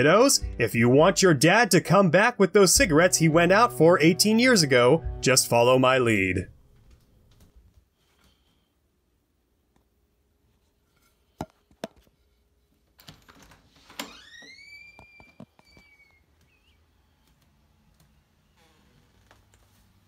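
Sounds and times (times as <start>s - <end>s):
door squeaking open: 13.8s - 16.8s.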